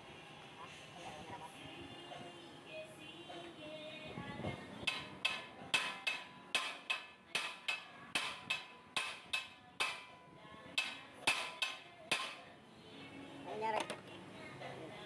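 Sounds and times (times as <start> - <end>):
hammer blows on metal: 4.2 - 12.6.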